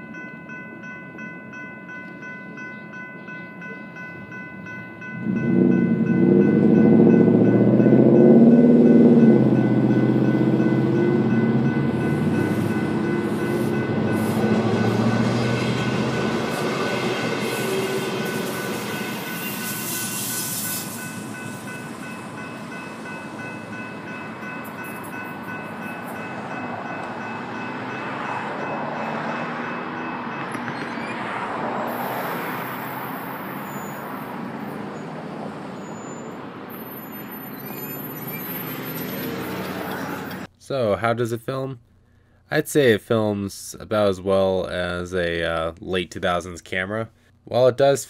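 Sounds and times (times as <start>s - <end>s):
electric train passing: 0.0s - 40.5s
high-pitched whining tones: 5.0s - 35.1s.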